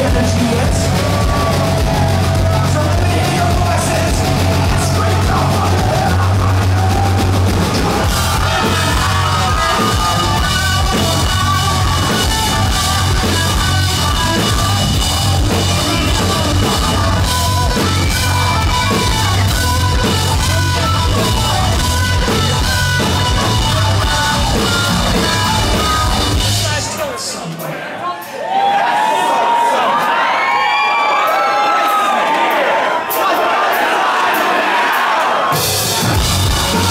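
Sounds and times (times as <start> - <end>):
distorted electric guitar: 0.0 - 27.0, 35.5 - 36.9
bass guitar: 0.0 - 27.2, 35.5 - 36.9
drum kit: 0.0 - 27.8, 31.2 - 36.9.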